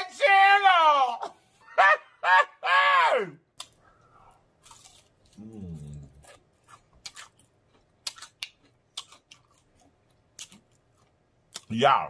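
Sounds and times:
person chewing: 3.5 - 11.7
low hummed mm: 5.3 - 6.4.

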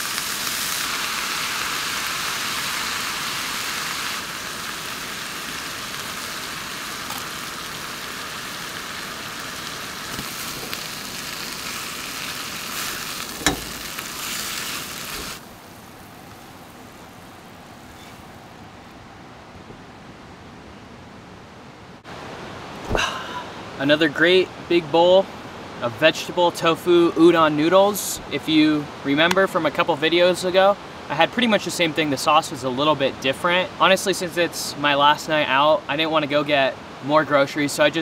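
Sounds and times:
food sizzling in a frying pan: 0.0 - 17.2
faint hiss: 0.0 - 19.0.

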